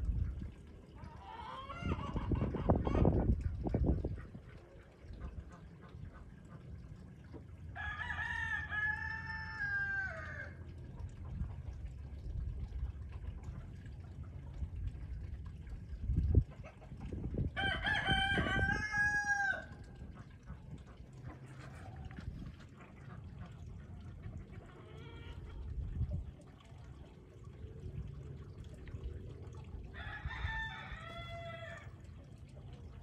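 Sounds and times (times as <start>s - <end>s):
rooster crowing: 7.8s - 10.6s, 17.6s - 19.7s
steady low rumble: 10.6s - 17.6s, 25.4s - 30.0s.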